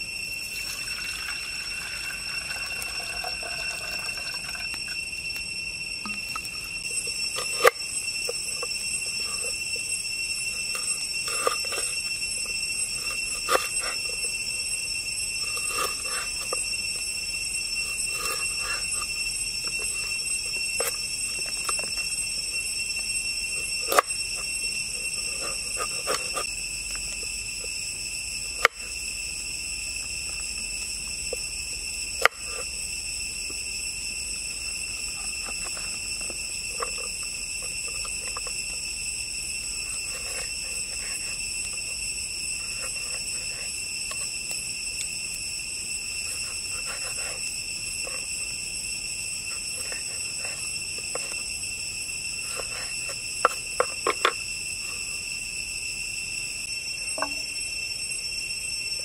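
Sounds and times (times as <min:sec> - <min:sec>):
insects droning: 0:00.0 - 0:59.0.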